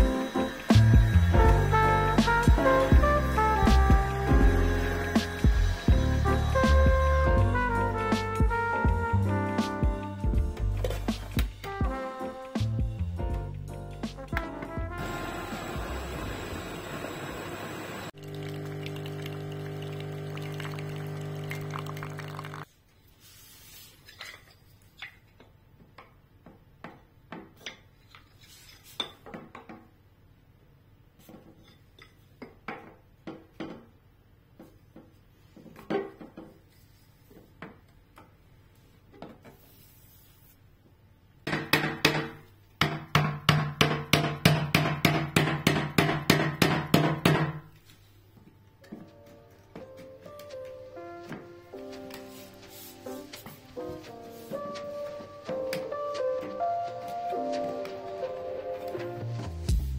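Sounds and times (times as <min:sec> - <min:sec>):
coffee machine humming: 0:00.0 - 0:07.2, 0:15.0 - 0:22.6.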